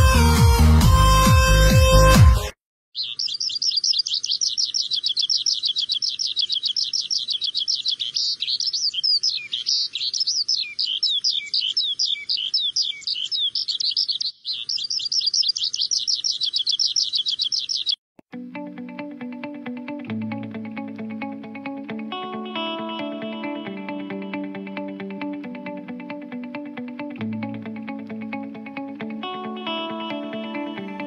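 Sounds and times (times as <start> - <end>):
bird chirping: 3.0 - 18.0.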